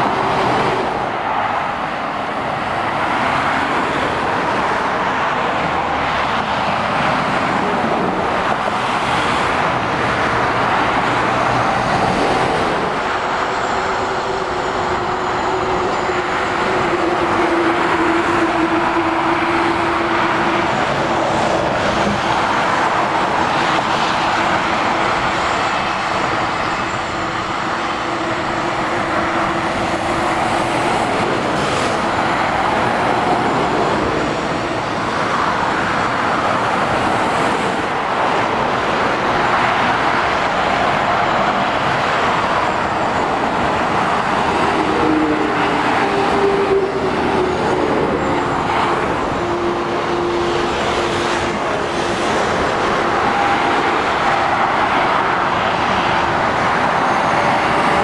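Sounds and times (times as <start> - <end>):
motorway traffic rushing: 0.0 - 58.0.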